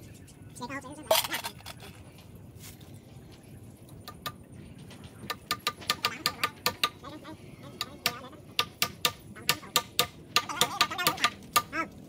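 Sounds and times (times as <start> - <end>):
hammer tapping metal: 5.2 - 7.0, 7.8 - 11.8.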